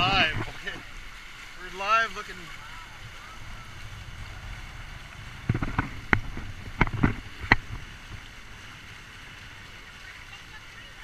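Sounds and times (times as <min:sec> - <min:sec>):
water noise: 0:00.0 - 0:11.0
wind: 0:00.0 - 0:11.0
sharp knocks and clicks: 0:05.4 - 0:08.2.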